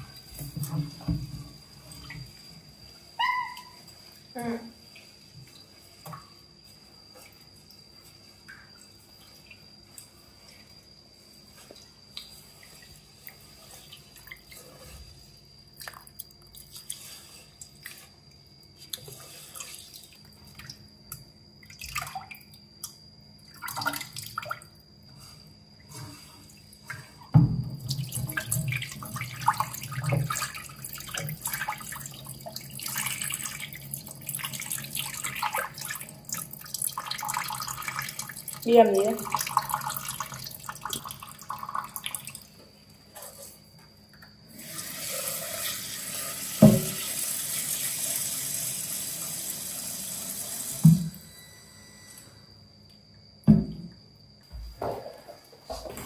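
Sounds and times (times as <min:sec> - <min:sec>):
rice washed in a metal pot: 0:03.8 - 0:22.8, 0:23.5 - 0:43.6, 0:44.5 - 0:50.9
water poured into a sink: 0:23.5 - 0:24.7, 0:27.8 - 0:42.5, 0:44.5 - 0:51.0.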